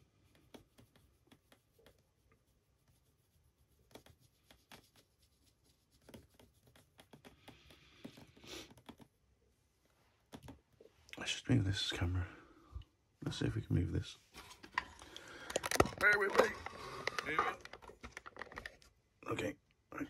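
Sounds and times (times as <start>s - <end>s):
paintbrush scratching: 0.0s - 10.2s.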